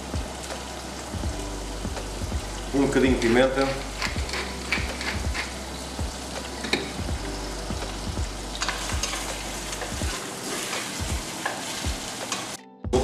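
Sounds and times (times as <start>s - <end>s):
prawns sizzling in oil: 0.0s - 12.6s
pepper mill grinding: 3.2s - 5.6s.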